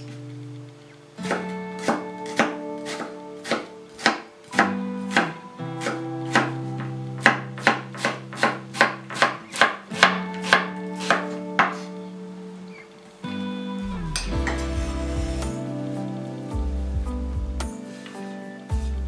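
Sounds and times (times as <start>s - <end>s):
soft guitar music: 0.0s - 19.0s
knife chopping on wooden board: 7.2s - 11.9s.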